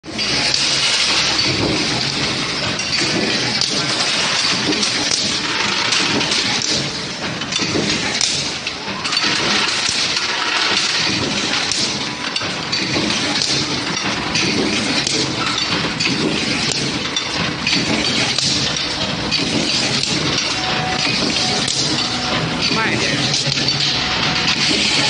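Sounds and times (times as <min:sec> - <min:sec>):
clatter of metal machinery: 0:00.0 - 0:25.0.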